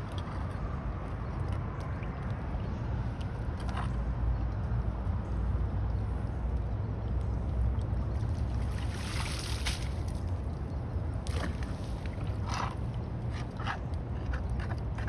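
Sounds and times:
rake dragging through water: 8.5 - 10.3.

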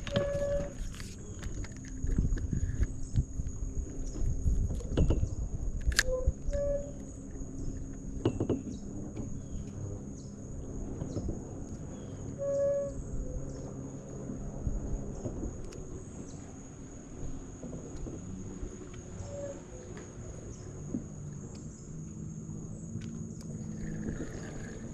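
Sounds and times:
handling noise rumble: 14.5 - 24.9
high-pitched insect chorus: 18.2 - 24.9.

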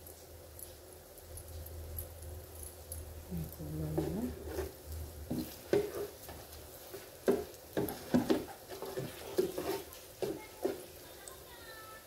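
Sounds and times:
skimmer knocking on fryer basket: 7.2 - 11.0.

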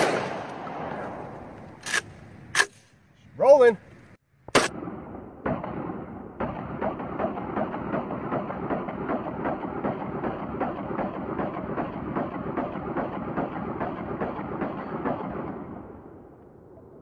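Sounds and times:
shotgun firing rapidly: 4.6 - 15.6.

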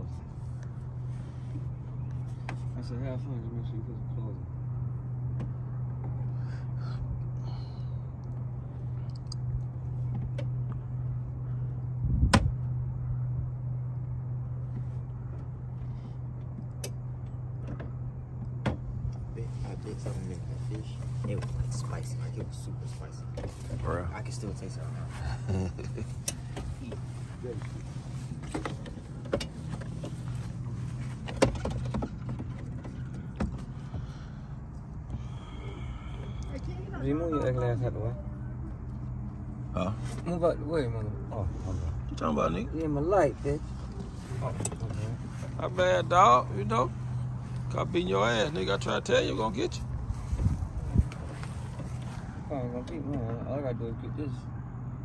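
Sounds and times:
steady low hum: 0.0 - 55.0
loud thump: 12.2 - 12.6.

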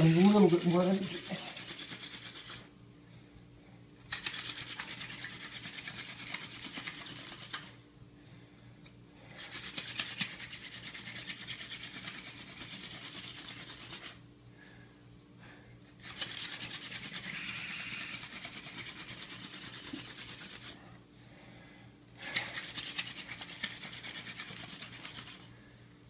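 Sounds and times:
hand drill spindle rubbing hiss: 16.1 - 20.7.

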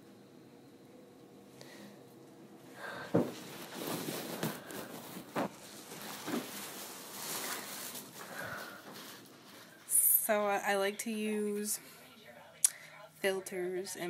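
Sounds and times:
fabric rustling: 3.2 - 9.9.

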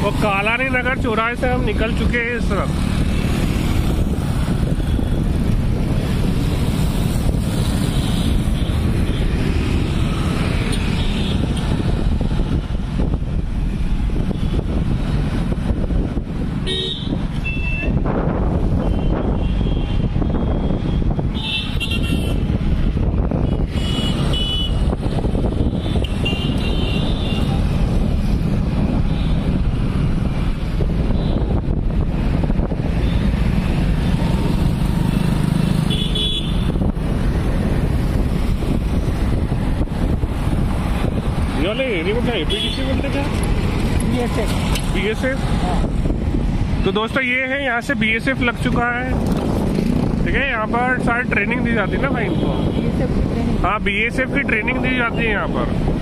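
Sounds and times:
city traffic rumble: 0.0 - 56.0
vehicle horns tooting: 16.6 - 18.0, 21.3 - 22.5, 23.4 - 24.8, 25.8 - 27.6, 35.9 - 36.8, 42.4 - 43.0.

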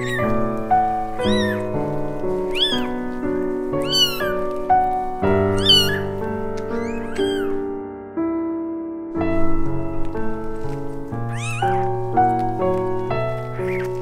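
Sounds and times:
kitten mewing: 0.0 - 3.0, 3.8 - 7.7, 11.3 - 11.9
soft background music: 0.0 - 14.0.

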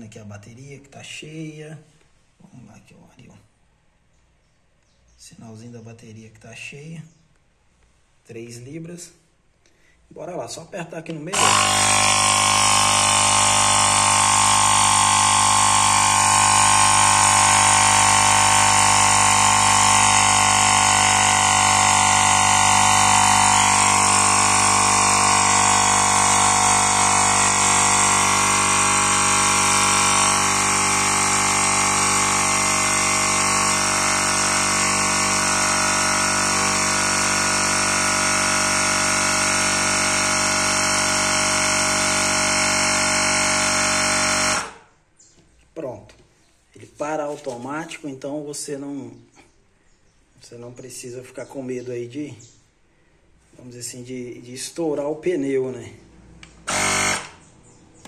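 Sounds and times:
air compressor humming: 11.3 - 45.0, 56.1 - 58.0.

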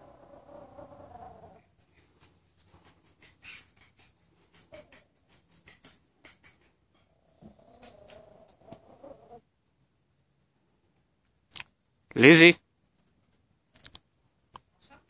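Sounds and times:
faint clicks and scuffs: 1.6 - 6.8
puppy vocalizing: 3.3 - 9.4.

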